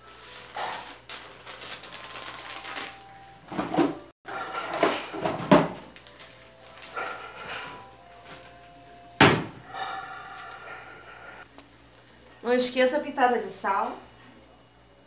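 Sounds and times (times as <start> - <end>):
kitchen items clicking and knocking: 3.5 - 5.9.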